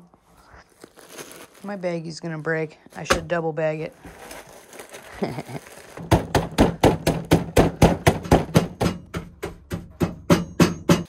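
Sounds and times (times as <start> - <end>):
pretzels crushed in plastic bag: 0.5 - 2.3, 3.9 - 7.6.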